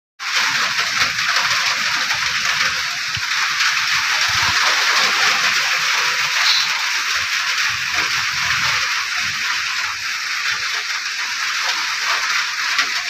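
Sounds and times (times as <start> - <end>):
light rain falling: 0.2 - 13.0.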